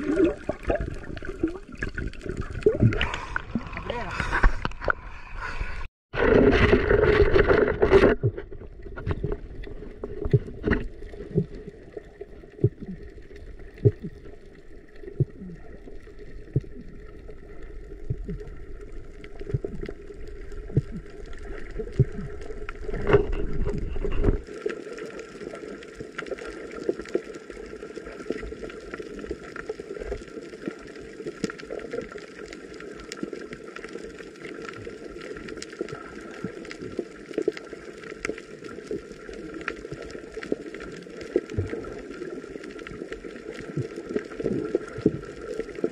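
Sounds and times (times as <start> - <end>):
underwater clicks and pops: 0.0 - 5.0, 6.2 - 11.7, 12.6 - 14.3, 16.4 - 16.9, 18.0 - 18.5, 19.3 - 24.4
underwater low hum: 0.0 - 45.9
water sloshing and splashing: 0.0 - 45.9.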